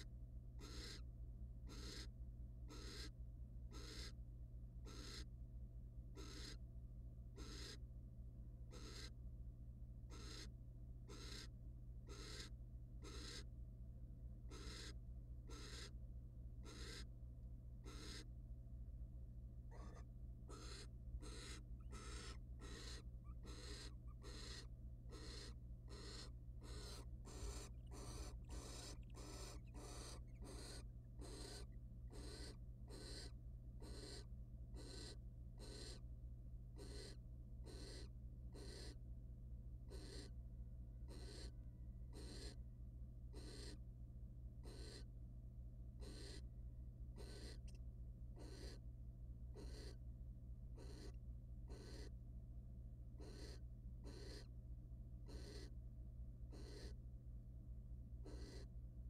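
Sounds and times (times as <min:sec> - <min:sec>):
low electrical hum: 0:00.0 - 0:59.0
owl hissing snore calls: 0:00.6 - 0:01.0, 0:01.7 - 0:02.1, 0:02.7 - 0:03.1, 0:03.7 - 0:04.2, 0:04.9 - 0:05.3, 0:06.2 - 0:06.6, 0:07.4 - 0:07.8, 0:08.7 - 0:09.1, 0:10.1 - 0:10.5, 0:11.1 - 0:11.5, 0:12.1 - 0:13.5, 0:14.5 - 0:16.0, 0:16.6 - 0:17.1, 0:17.8 - 0:18.3, 0:19.7 - 0:36.0, 0:36.8 - 0:39.0, 0:39.9 - 0:40.3, 0:41.1 - 0:41.5, 0:42.1 - 0:42.6, 0:43.3 - 0:43.8, 0:44.6 - 0:45.1, 0:46.0 - 0:46.4, 0:47.2 - 0:47.7, 0:48.4 - 0:48.8, 0:49.6 - 0:50.0, 0:50.8 - 0:52.1, 0:53.2 - 0:54.5, 0:55.2 - 0:55.7, 0:56.5 - 0:57.0, 0:58.2 - 0:58.7.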